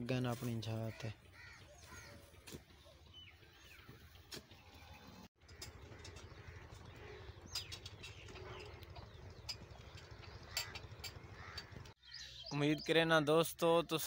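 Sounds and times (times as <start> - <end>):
cart rumbling on dirt track: 1.2 - 12.0
bird chirp: 1.3 - 13.2
cart clicks and knocks: 5.4 - 11.9.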